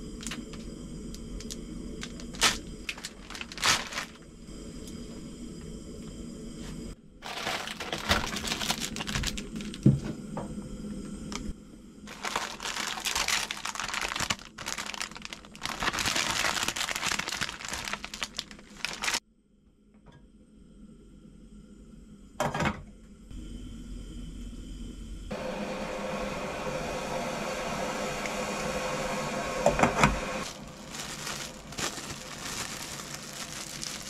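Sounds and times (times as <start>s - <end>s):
plastic packaging crinkling: 0.2s - 4.2s, 7.2s - 10.0s, 12.1s - 19.2s, 30.4s - 34.0s.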